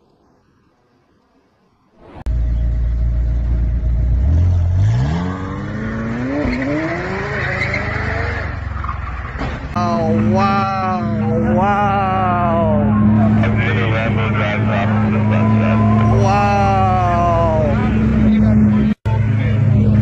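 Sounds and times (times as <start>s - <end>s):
car engine accelerating hard: 2.3s - 8.9s
person shouting: 9.8s - 12.9s, 15.3s - 17.9s.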